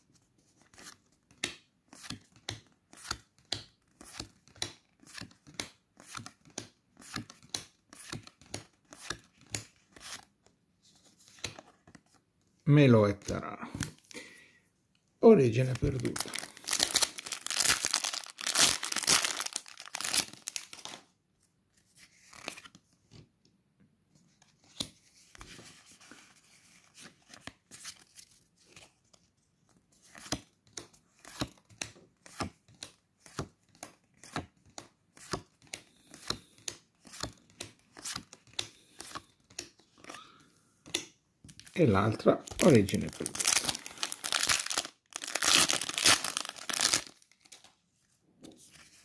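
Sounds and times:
foil pack crinkling and tearing: 0:16.0 - 0:20.9, 0:42.6 - 0:47.3.

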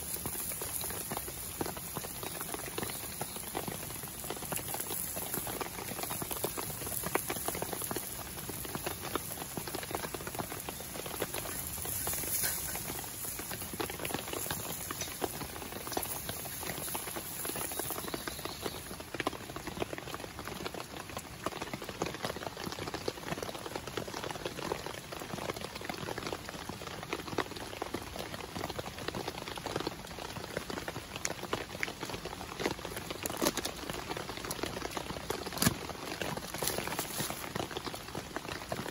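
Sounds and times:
vegetables sizzling with crackling: 0:00.0 - 0:20.1, 0:32.9 - 0:38.9.

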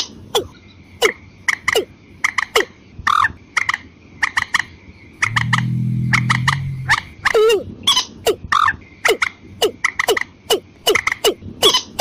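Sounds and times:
low droning bird call: 0:05.0 - 0:07.6.

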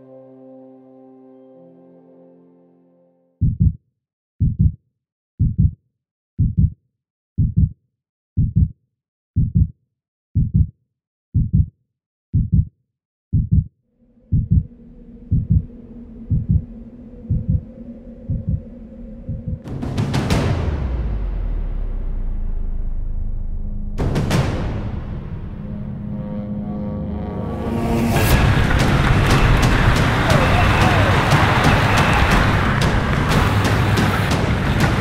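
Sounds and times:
heartbeat thumps: 0:03.4 - 0:03.8, 0:04.4 - 0:04.8, 0:05.4 - 0:05.8, 0:06.4 - 0:06.8, 0:07.4 - 0:07.8, 0:08.4 - 0:08.8, 0:09.4 - 0:09.7, 0:10.4 - 0:10.7, 0:11.4 - 0:11.7, 0:12.4 - 0:12.7, 0:13.3 - 0:13.7, 0:14.3 - 0:14.7, 0:15.3 - 0:15.7, 0:16.3 - 0:16.7, 0:17.3 - 0:17.7, 0:18.3 - 0:18.7, 0:19.3 - 0:20.8, 0:28.2 - 0:35.0
low sustained drone: 0:13.9 - 0:19.7, 0:20.6 - 0:35.0.

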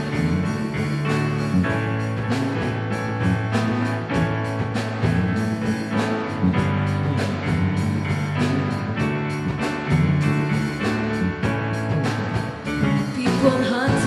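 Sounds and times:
bass line: 0:00.0 - 0:14.0
drum kit beat: 0:00.0 - 0:14.0
keyboard chords: 0:00.0 - 0:14.0.

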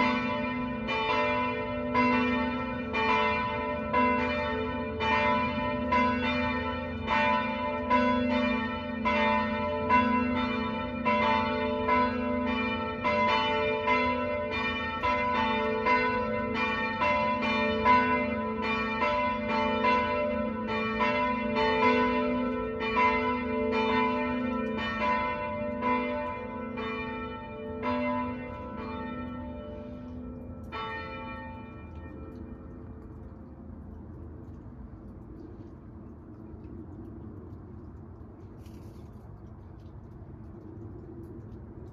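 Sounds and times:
church bells ringing in full peal: 0:00.0 - 0:33.1.

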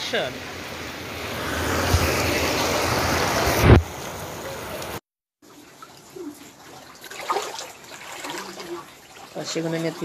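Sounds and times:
heavy rain pouring: 0:00.0 - 0:05.0.

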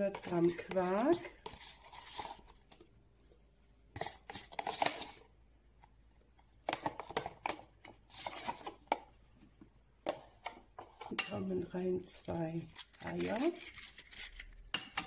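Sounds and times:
spoon scraping plastic tub: 0:00.0 - 0:02.9, 0:03.9 - 0:05.3, 0:06.6 - 0:15.0.

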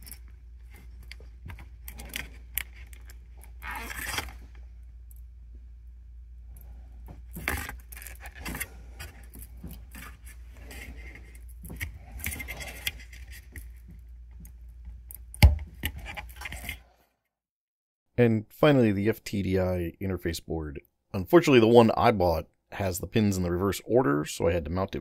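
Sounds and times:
low steady hum: 0:00.0 - 0:16.8.

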